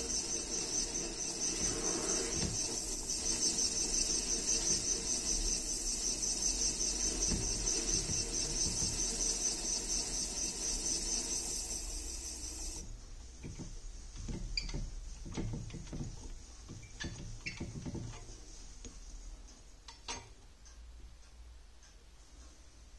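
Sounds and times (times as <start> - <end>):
wooden handle squeaking: 0.0 - 12.8, 13.4 - 18.3.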